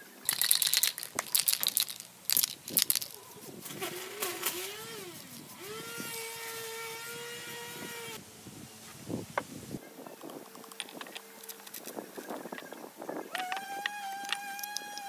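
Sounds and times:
spray can hissing: 0.3 - 6.9.

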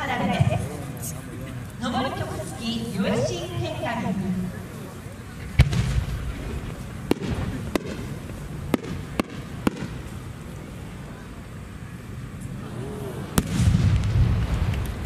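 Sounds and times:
firework pops: 5.5 - 10.1, 13.4 - 15.0
deep rolling boom: 13.3 - 15.0
firework shell bang: 13.4 - 15.0.

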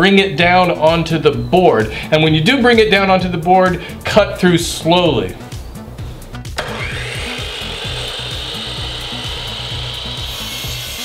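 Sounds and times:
miter saw motor whining: 6.6 - 11.0.

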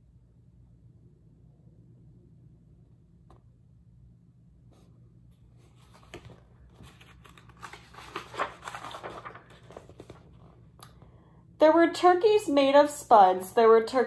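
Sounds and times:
book pages turning: 4.7 - 11.0.

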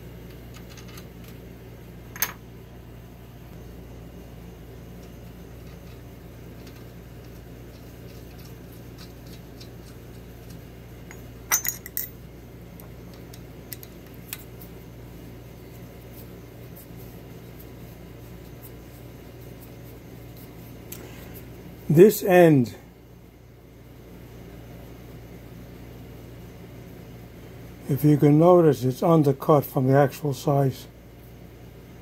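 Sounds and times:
steady low hum: 0.0 - 32.0
metal tools clinking on metal: 11.1 - 12.2.

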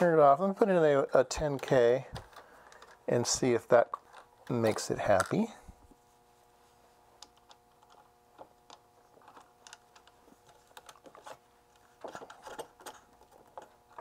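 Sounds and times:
faint electrical hum: 0.0 - 14.0
small tools clicking and tapping: 12.0 - 14.0.

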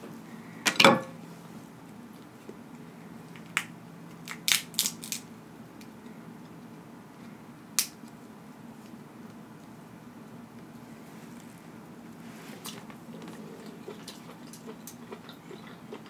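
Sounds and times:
crab shell cracking: 3.5 - 5.3.

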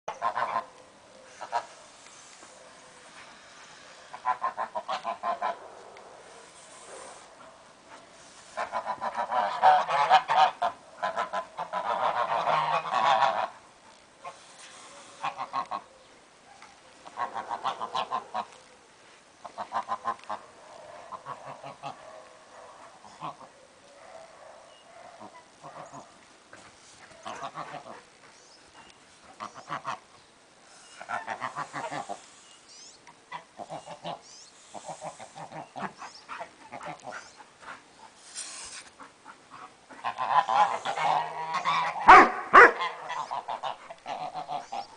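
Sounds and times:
geese honking: 0.1 - 2.5, 3.1 - 5.6, 8.3 - 13.6, 14.2 - 15.9, 17.0 - 18.6, 19.4 - 22.0, 27.2 - 28.0, 30.7 - 32.4, 38.4 - 44.9.

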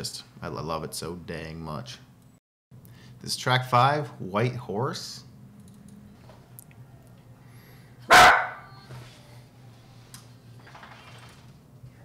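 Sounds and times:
dog barking: 8.1 - 8.7.

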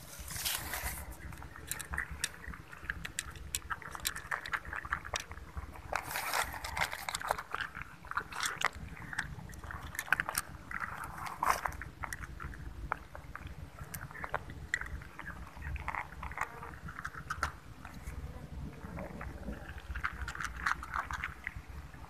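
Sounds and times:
cats crunching dry kibble: 0.0 - 22.0
low steady rumble: 0.0 - 22.0.

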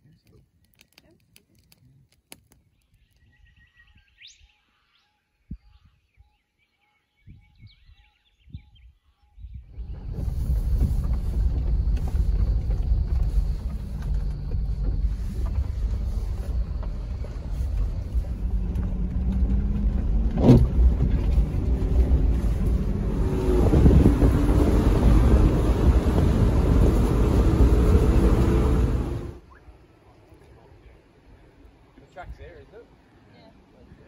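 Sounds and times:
vehicle engine and road rumble: 9.5 - 29.5.

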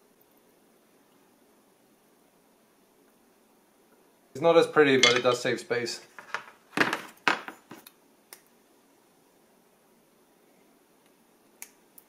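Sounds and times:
metal tools clicking and tapping: 5.0 - 5.4.

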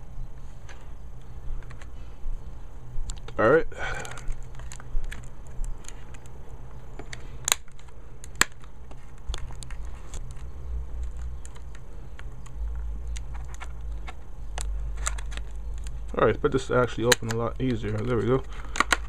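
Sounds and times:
plastic blister pack crinkling: 3.1 - 6.4, 7.1 - 19.0
plastic snapping: 7.0 - 16.2, 17.0 - 19.0.

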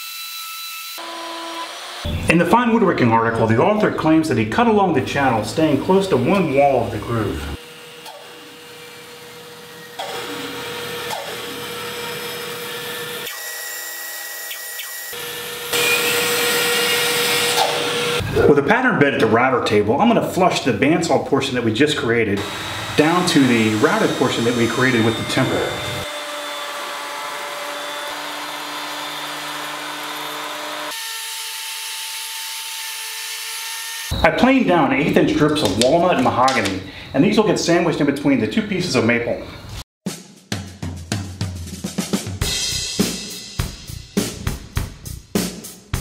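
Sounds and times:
saw blade cutting wood: 0.0 - 2.2, 7.4 - 18.3, 22.4 - 34.2
bandsaw motor hum: 5.5 - 18.3, 22.4 - 34.2.

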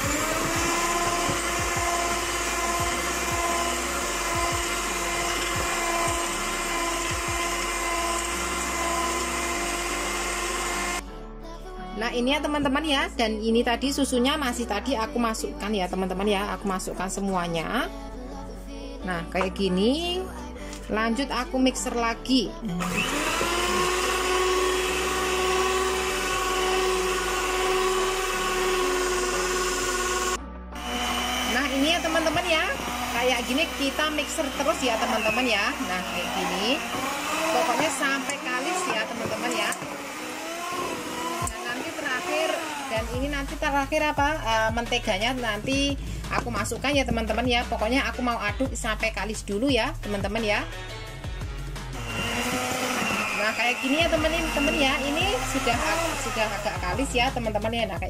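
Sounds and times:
hand mixer motor whine: 0.0 - 11.0, 22.7 - 44.6, 51.9 - 57.6.

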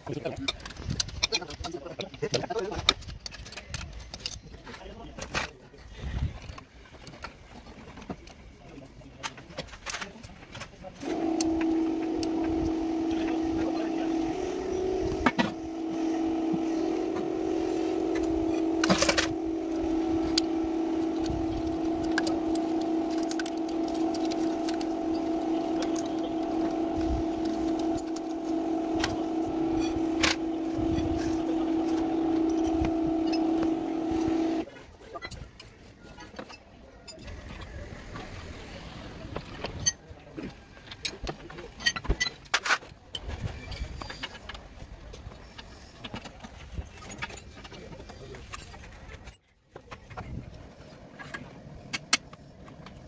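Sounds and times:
mechanical hum: 10.5 - 34.7.

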